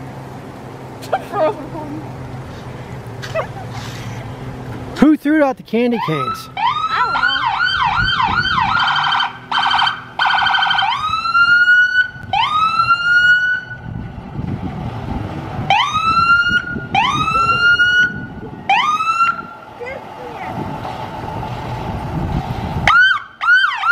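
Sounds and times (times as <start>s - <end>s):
low vehicle rumble: 0.0s - 23.9s
electronic siren: 6.0s - 14.0s, 15.7s - 19.6s.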